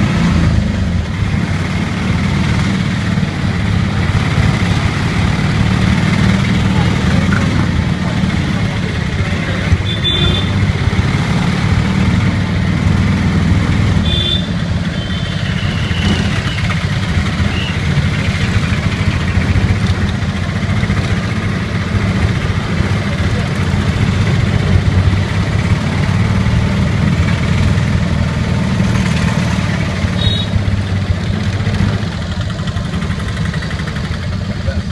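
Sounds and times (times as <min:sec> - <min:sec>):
small engine running: 0:01.5 - 0:34.9.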